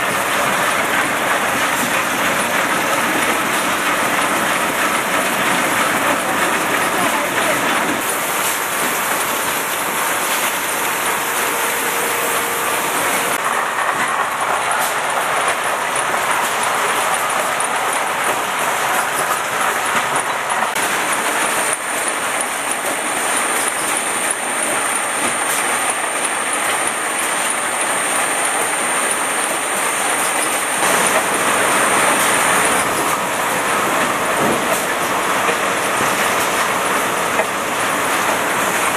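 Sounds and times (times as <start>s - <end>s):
bottle-labelling machine running: 0.0s - 38.9s
high steady whine: 7.0s - 14.5s.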